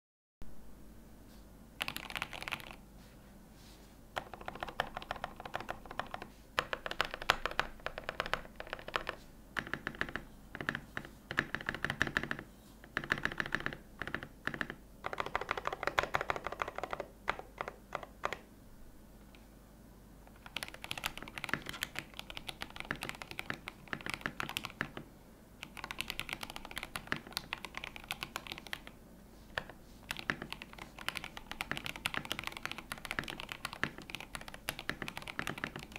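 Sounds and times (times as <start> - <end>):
mechanical keyboard keystroke clacks: 13.0 - 18.4.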